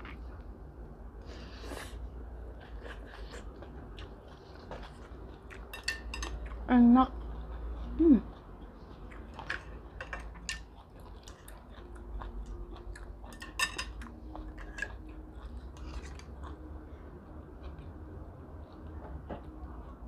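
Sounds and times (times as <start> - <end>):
chewing: 2.5 - 20.0
chopsticks clicking on dishes: 5.5 - 6.6, 9.3 - 10.8, 13.3 - 15.0.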